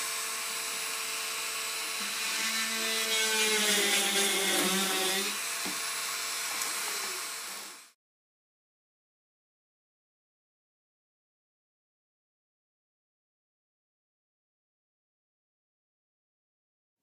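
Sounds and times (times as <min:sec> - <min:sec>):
rotary tool cutting plywood: 0:00.0 - 0:08.0
rotary tool whining: 0:00.0 - 0:08.0.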